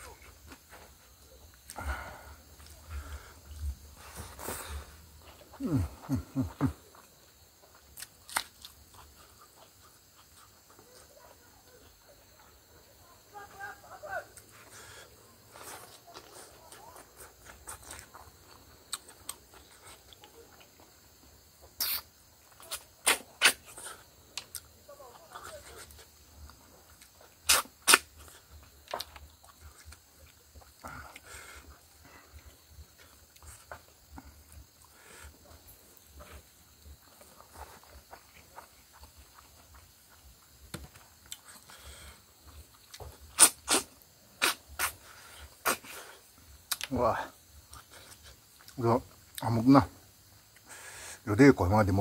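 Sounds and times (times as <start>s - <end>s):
person chewing with wet smacks: 6.2s - 11.2s, 15.5s - 21.0s, 21.6s - 41.8s, 42.4s - 46.9s, 47.6s - 49.4s
sharp sucking intakes of air: 21.8s - 22.1s, 43.3s - 46.0s
mouth clicks: 21.8s - 24.7s, 27.4s - 28.1s, 42.9s - 46.0s.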